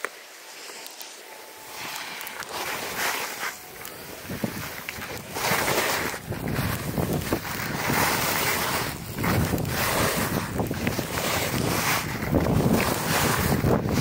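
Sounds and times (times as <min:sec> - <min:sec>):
skis scraping over snow: 0:00.0 - 0:14.0
wind rushing over microphone: 0:03.7 - 0:14.0.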